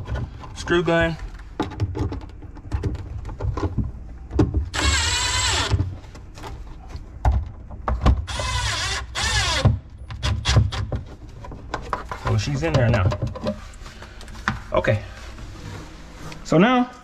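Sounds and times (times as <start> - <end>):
handling clicks and knocks: 0.0 - 4.7, 10.8 - 14.6
screw gun motor whining: 4.7 - 5.8, 8.3 - 9.7.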